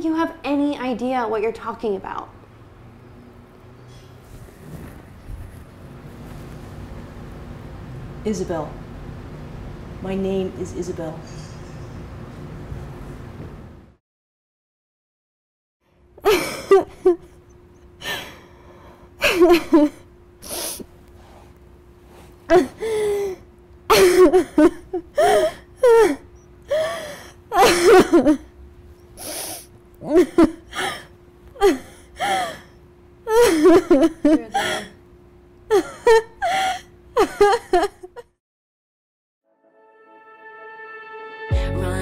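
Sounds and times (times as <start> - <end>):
faint steady hum: 15.9 - 38.4
woman sobbing: 16.2 - 17.4, 19.2 - 20.0, 22.5 - 28.5, 30.0 - 32.7, 33.3 - 35.0, 35.7 - 38.1.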